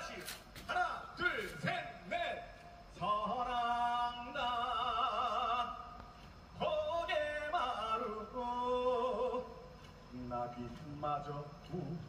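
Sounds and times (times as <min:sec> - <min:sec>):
man singing into a microphone: 0:03.0 - 0:06.0, 0:06.6 - 0:09.6.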